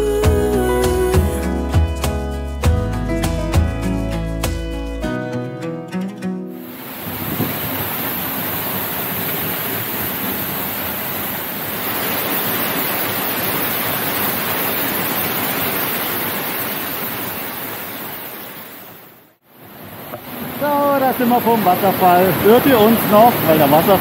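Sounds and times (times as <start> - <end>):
waterfall rushing: 6.6 - 24.0.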